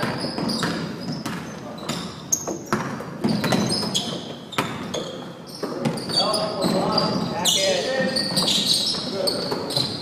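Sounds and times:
basketball bouncing on hardwood: 0:00.0 - 0:04.9
sneaker squeaks: 0:00.0 - 0:10.0.

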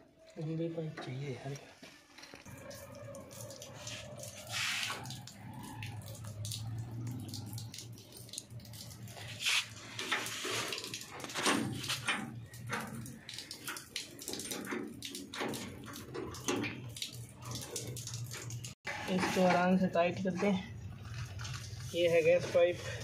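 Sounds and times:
rustling of pipe and cloth: 0:09.1 - 0:13.0, 0:19.0 - 0:23.0.

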